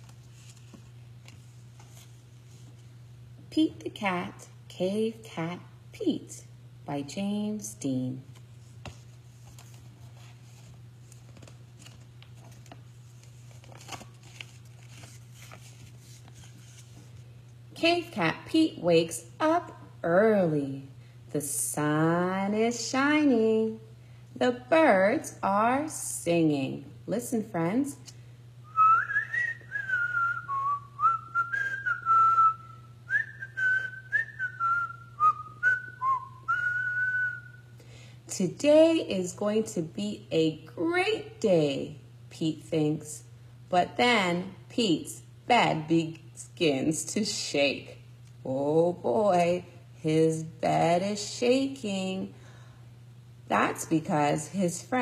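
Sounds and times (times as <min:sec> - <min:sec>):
book pages turning: 0:00.0 - 0:02.9, 0:08.3 - 0:17.3
steady low hum: 0:00.0 - 0:55.0
person whistling bird calls: 0:28.7 - 0:37.6.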